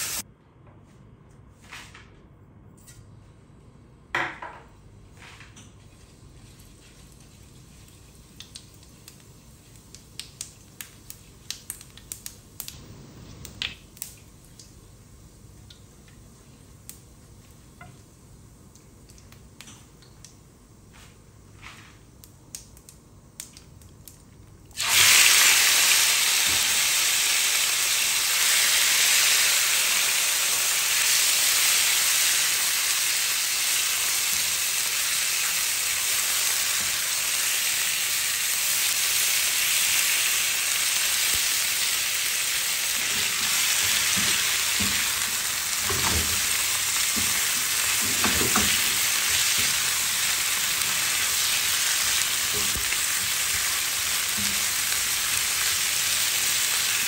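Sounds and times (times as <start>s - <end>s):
chicken sizzling in a pan: 0.0s - 0.2s, 24.8s - 57.0s.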